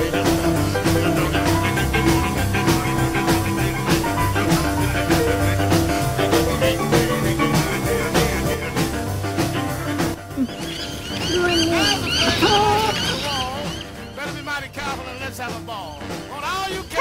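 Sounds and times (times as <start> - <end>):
upbeat boogie music: 0.0 - 17.0.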